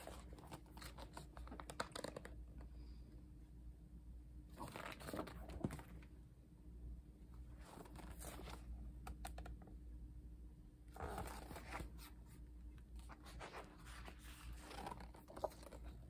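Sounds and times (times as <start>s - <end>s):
glossy pages rustling and sliding: 0.0s - 2.3s, 4.5s - 6.0s, 7.6s - 9.4s, 10.9s - 16.0s.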